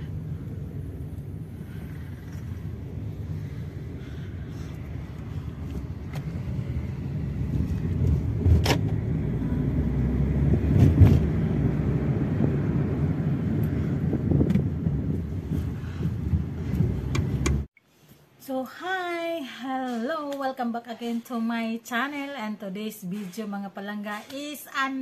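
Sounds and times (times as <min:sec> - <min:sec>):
car road and engine rumble: 0:00.0 - 0:17.8.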